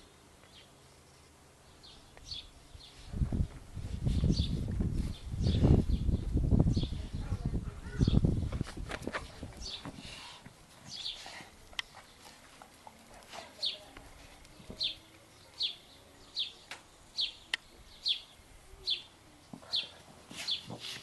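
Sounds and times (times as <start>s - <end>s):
bird chirping: 14.5s - 20.8s.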